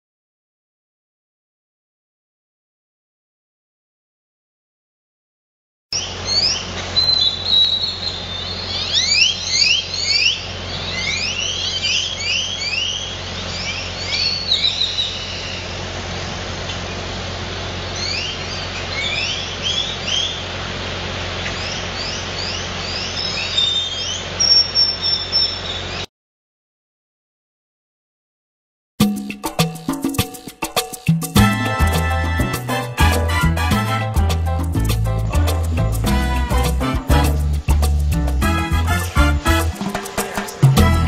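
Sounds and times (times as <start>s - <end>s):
birds chirping: 5.9s - 15.9s, 17.6s - 20.5s, 21.4s - 26.1s.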